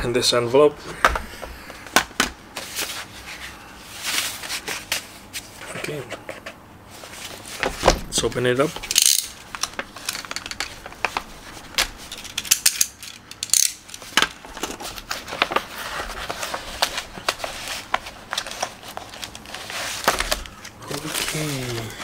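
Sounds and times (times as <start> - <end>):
paper envelope crinkling: 14.0 - 22.0.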